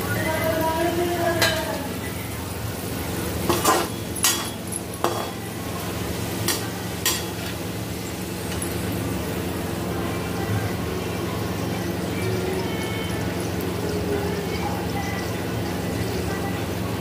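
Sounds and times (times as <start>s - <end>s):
potatoes sizzling in a pan: 0.0s - 17.0s
metal spoon scraping a pan: 3.5s - 5.4s, 6.4s - 7.6s.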